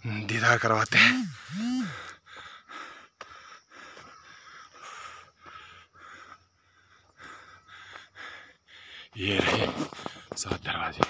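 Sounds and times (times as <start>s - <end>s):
person breathing hard: 1.0s - 9.2s.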